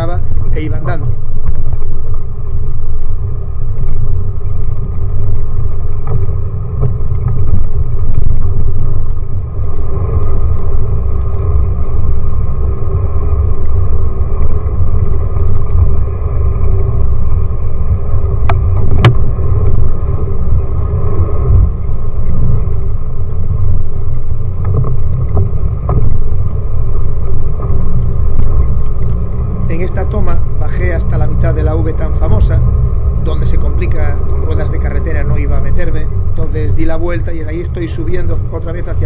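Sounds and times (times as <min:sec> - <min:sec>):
vehicle engine and road rumble: 0:00.0 - 0:39.0.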